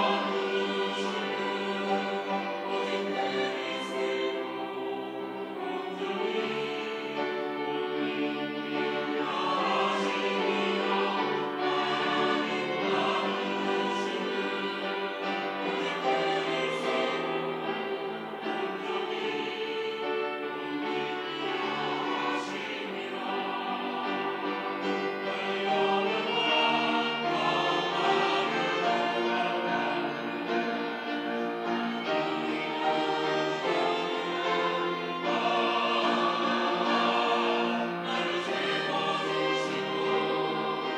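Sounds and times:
choir singing in harmony: 0.0 - 40.9.

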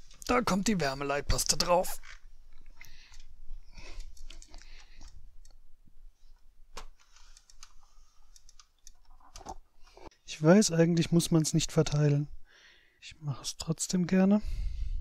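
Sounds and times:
hands handling computer parts: 6.3 - 10.1.

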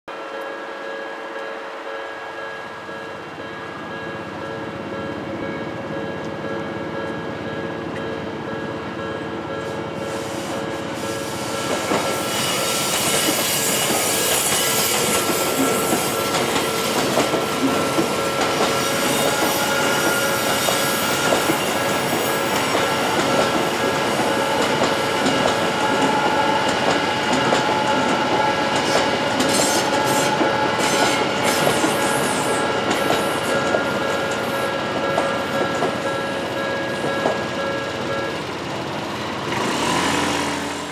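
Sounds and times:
train wheels clacking on rails: 2.4 - 40.9
high-pitched wheel squeal: 18.7 - 22.4
level crossing bells ringing: 32.0 - 39.4.

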